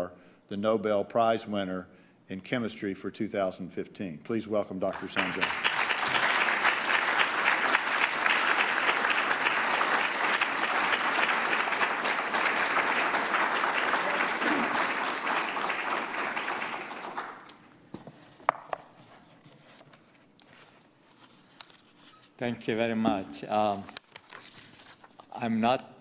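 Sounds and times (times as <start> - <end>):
audience applauding: 4.9 - 17.5.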